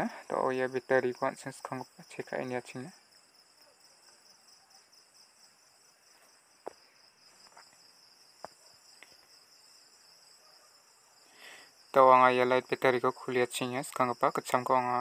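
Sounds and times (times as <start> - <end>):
crickets chirping: 0.0 - 15.0.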